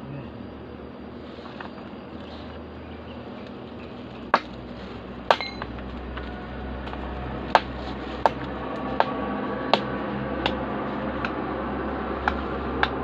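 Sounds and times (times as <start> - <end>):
metal tool clinking on rock: 5.3 - 5.7.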